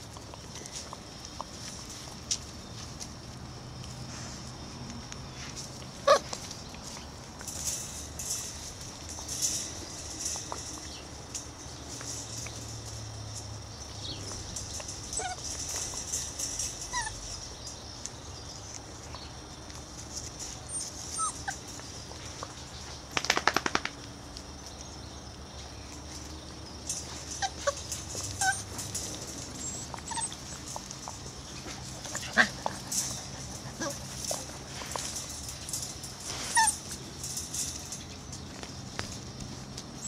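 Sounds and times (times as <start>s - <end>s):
puppies whimpering: 6.0s - 8.0s, 14.6s - 17.7s, 20.5s - 22.0s, 26.9s - 38.2s
puppy squeaks and yips: 15.2s - 15.4s, 16.8s - 17.2s, 20.7s - 21.4s, 28.4s - 28.7s, 29.6s - 30.6s, 36.5s - 36.8s.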